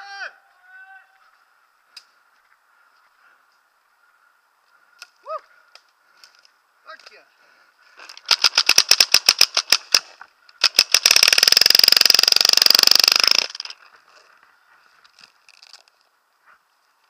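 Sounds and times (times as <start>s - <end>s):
paintball marker firing: 8.3s - 13.6s.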